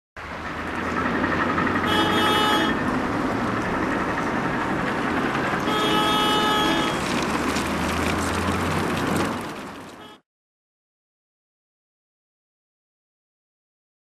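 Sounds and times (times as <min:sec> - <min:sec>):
city street traffic: 0:00.2 - 0:10.2
vehicle horn: 0:01.8 - 0:02.9, 0:05.6 - 0:07.2, 0:10.0 - 0:10.2.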